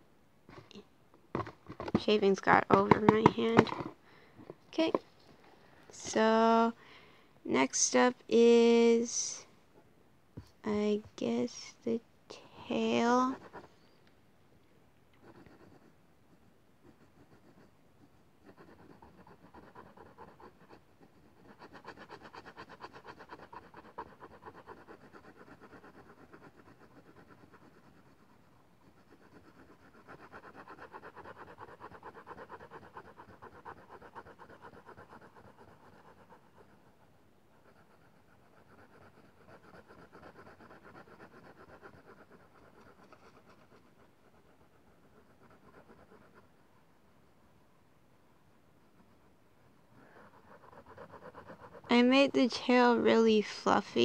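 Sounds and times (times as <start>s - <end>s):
pencil scratching on paper: 1.4s - 4.0s, 12.4s - 14.0s, 15.2s - 46.8s, 50.0s - 54.0s.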